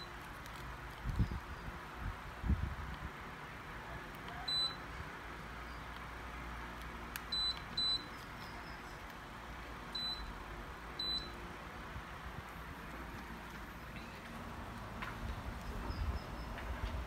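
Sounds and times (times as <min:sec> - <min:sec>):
air conditioner short high beeps: 0:04.4 - 0:05.0, 0:07.3 - 0:09.0, 0:09.9 - 0:10.4, 0:11.0 - 0:11.4.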